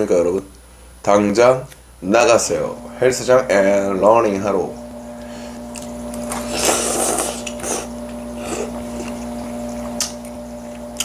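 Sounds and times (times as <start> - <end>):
steady low hum: 0.0 - 11.0
person slurping noodles: 6.2 - 9.6.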